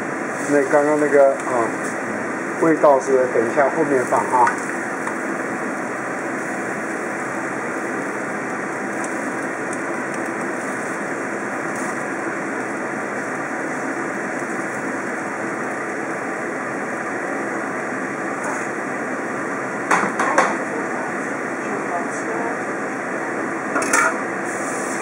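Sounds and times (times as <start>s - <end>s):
stove rushing noise: 0.0s - 25.0s.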